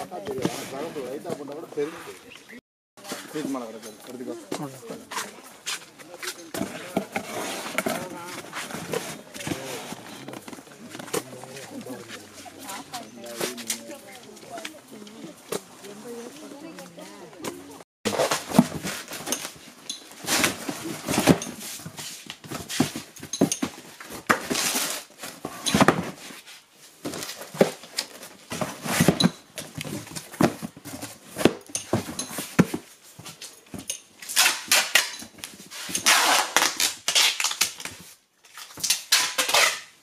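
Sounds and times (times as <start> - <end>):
cardboard scraping and rustling: 3.0 - 14.9, 17.4 - 33.8.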